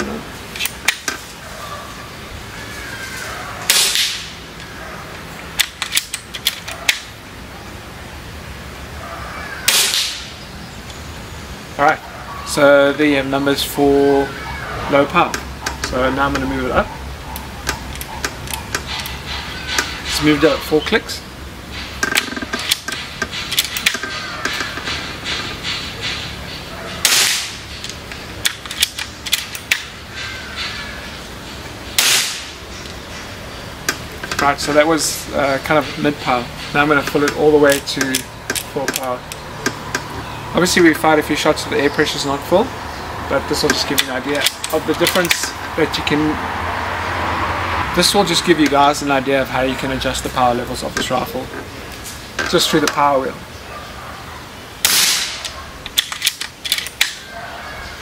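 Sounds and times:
air rifle shot: 3.7s - 4.3s, 9.7s - 10.3s, 27.0s - 27.6s, 32.0s - 32.6s, 54.8s - 55.4s
air rifle clicks: 5.5s - 7.1s, 22.0s - 26.2s, 27.0s - 29.9s, 37.2s - 40.1s, 54.8s - 57.3s
metallic clicks of rifle cocking: 5.6s - 7.0s, 27.1s - 29.9s, 54.8s - 57.2s.

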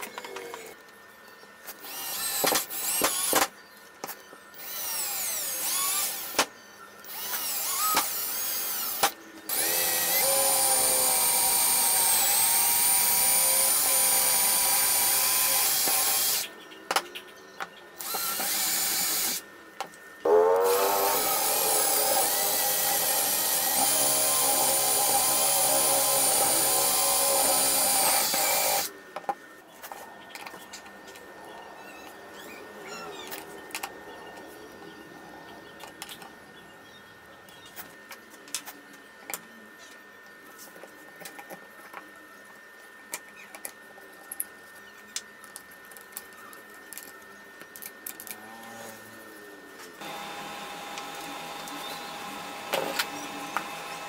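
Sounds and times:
cordless drill boring wood: 1.8s - 3.5s, 4.6s - 6.4s, 7.0s - 16.5s, 18.0s - 19.4s, 20.3s - 28.9s, 50.0s - 54.0s.

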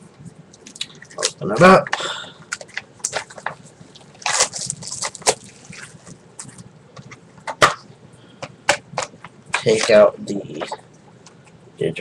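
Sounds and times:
plastic case rustling: 2.5s - 7.8s.

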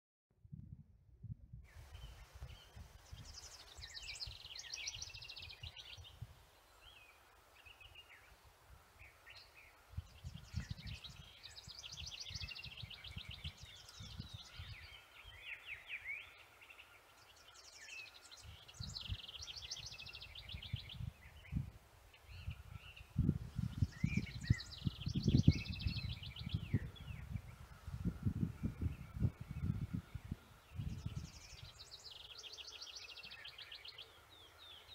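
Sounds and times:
low rumbling gusts: 20.6s - 31.5s.

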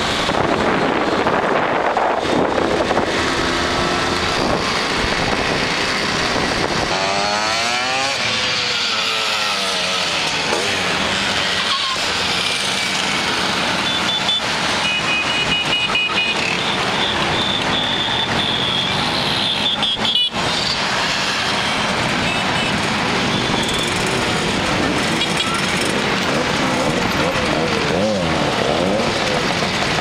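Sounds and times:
scooter engines passing: 0.0s - 30.0s
high-pitched horns beeping: 13.8s - 20.4s.

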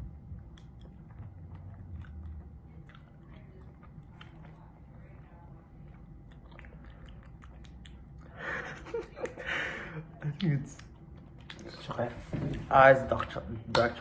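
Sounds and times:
person chewing: 0.1s - 9.4s, 10.3s - 11.8s.

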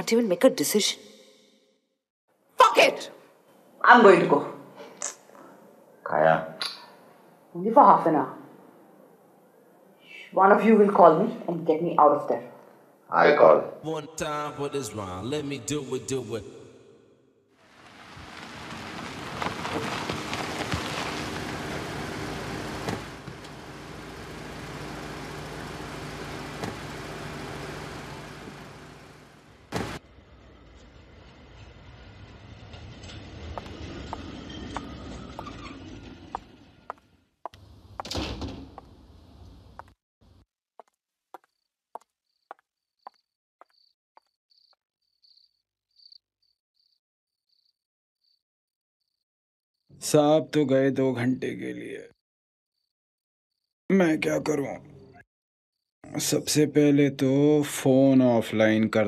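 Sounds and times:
tyres hissing on road: 17.6s - 30.0s
car engine humming: 17.7s - 30.2s
footstep clicks: 40.8s - 44.4s
faint crickets chirping: 41.4s - 48.4s, 52.8s - 53.7s.

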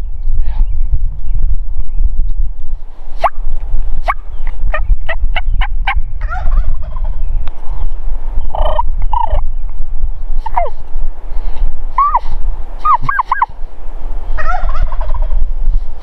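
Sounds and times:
steady low rumble: 0.0s - 16.0s
turkey gobbling: 4.1s - 7.2s, 12.8s - 13.5s, 14.4s - 15.4s.

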